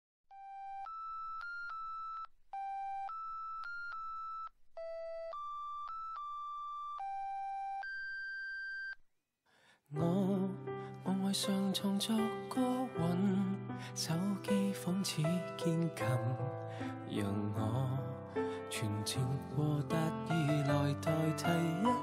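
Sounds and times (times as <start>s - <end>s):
electronic beeping melody: 19.1s - 22.0s.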